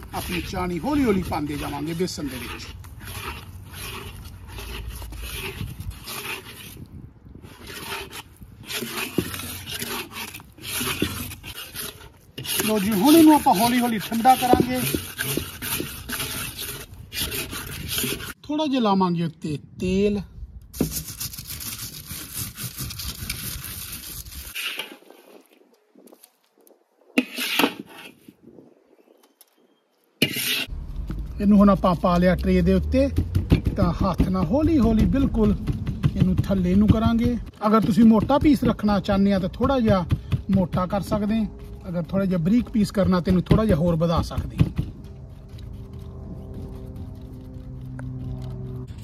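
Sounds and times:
spatula scraping a pan: 0.0 - 18.4, 20.8 - 25.4, 27.2 - 28.3, 30.2 - 30.7
sharp knocks: 33.1 - 38.7.

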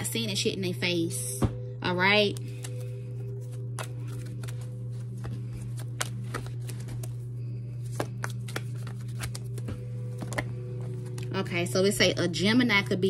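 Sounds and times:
background music: 0.0 - 13.0
cards being shuffled: 2.4 - 11.3.

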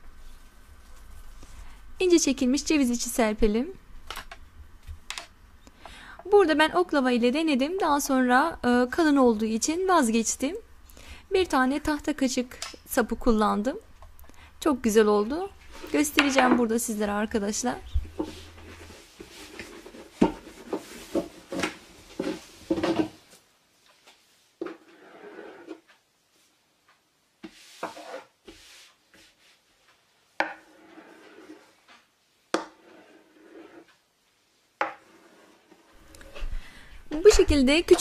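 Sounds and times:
rolling pin rolling on dough: 17.4 - 23.0, 24.6 - 26.0, 27.4 - 34.0, 34.8 - 36.0
knife tapping and scraping board: 27.4 - 29.3, 30.4 - 31.6, 34.8 - 35.3.

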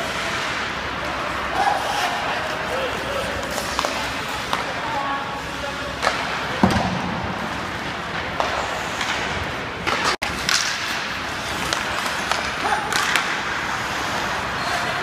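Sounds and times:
hockey sticks and puck clacking: 0.0 - 15.0
skates scraping ice: 0.0 - 15.0
thud: 6.6 - 7.5.

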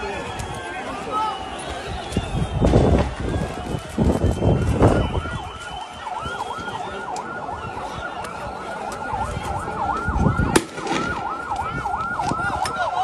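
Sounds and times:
siren yelping: 3.1 - 13.0.

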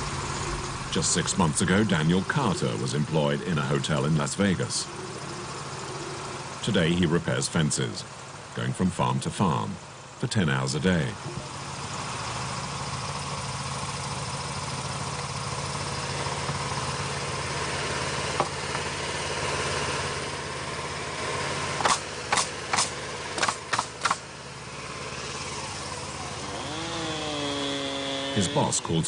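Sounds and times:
tractor engine idling: 0.0 - 29.0
sharp bangs: 21.8 - 24.3.

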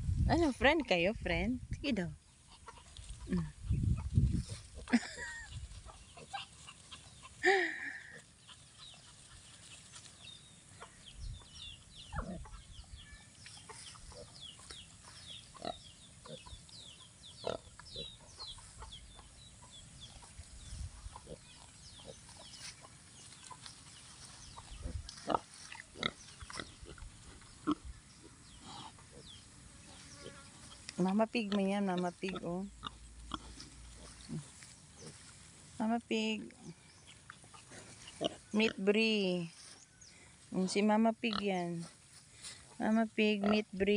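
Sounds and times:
pigs grunting: 17.4 - 18.3, 24.8 - 27.8.

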